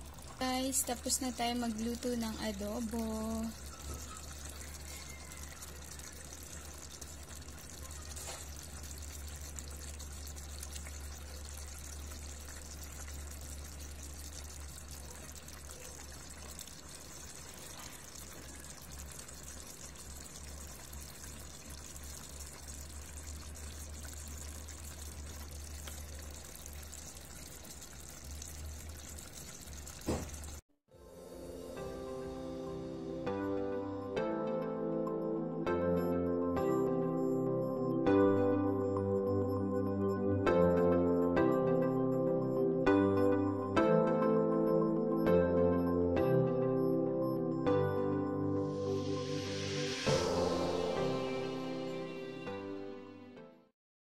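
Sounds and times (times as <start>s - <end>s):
sauce bubbling in a pot: 0.0s - 30.6s.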